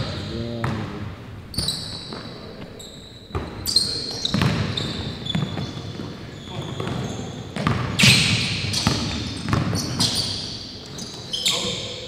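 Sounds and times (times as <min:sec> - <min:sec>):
sneakers squeaking on court: 0:01.5 - 0:12.0
basketball bouncing on wooden floor: 0:04.3 - 0:10.2.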